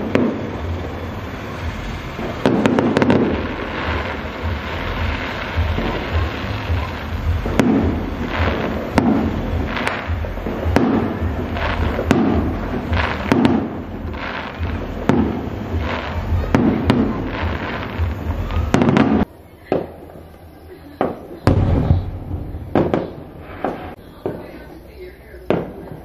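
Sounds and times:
fireworks bangs: 0.0s - 26.0s
fireworks crackling: 0.0s - 26.0s
low rumble: 21.5s - 24.0s.

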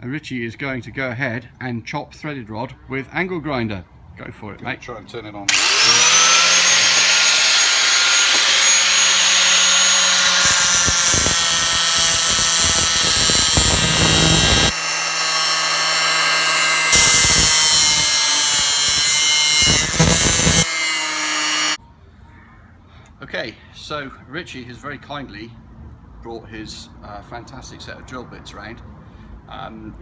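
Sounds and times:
angle grinder cutting steel rod: 5.5s - 21.8s.

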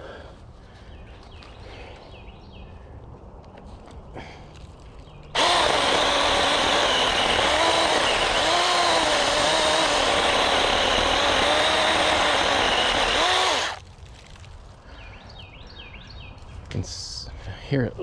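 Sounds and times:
chainsaw cutting wood: 5.4s - 13.8s.

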